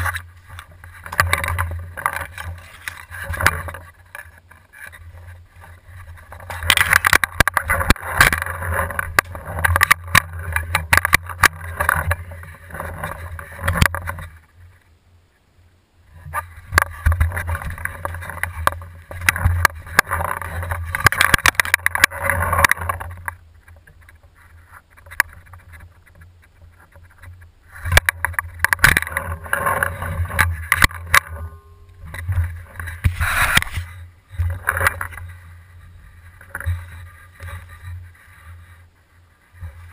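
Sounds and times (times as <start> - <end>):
camera handling rustling and knocks: 32.0 - 35.3.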